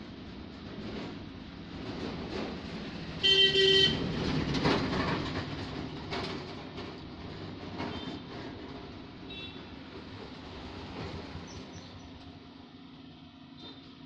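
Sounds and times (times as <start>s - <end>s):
passing traffic rumble: 0.0s - 14.0s
vehicle horn honking: 3.2s - 4.0s, 9.3s - 9.6s.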